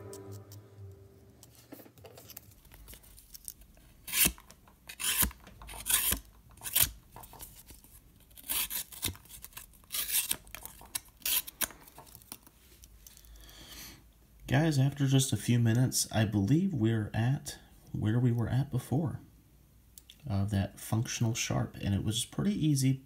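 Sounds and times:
knife blade scraping: 4.1 - 6.9.

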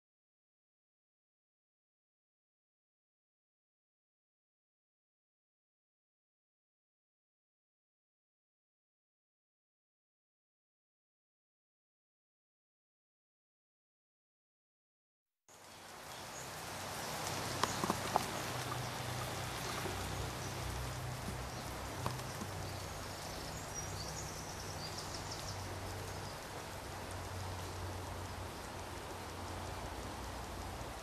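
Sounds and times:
meltwater running and dripping: 15.5 - 31.0.

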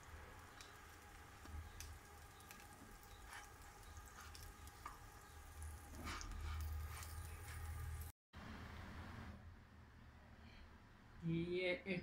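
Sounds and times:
bread sizzling in oil: 0.0 - 8.1
scraping in a pan: 5.8 - 8.1.

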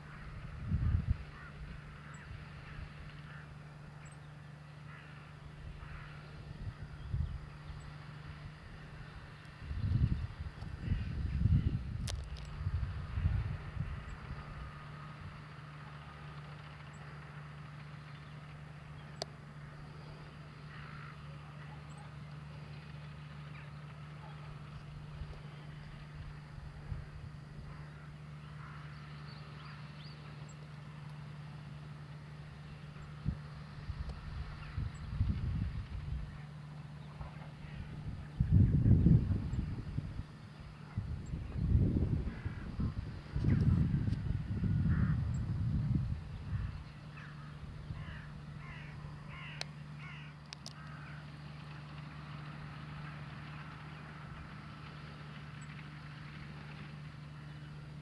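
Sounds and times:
distant tractor diesel engine drone: 0.0 - 58.0
crow cawing: 1.3 - 2.4, 3.2 - 3.6, 4.8 - 6.3, 20.6 - 21.3, 27.6 - 29.0, 42.3 - 42.7, 44.8 - 45.2, 46.6 - 51.3
sharp clicks: 50.4 - 50.9.

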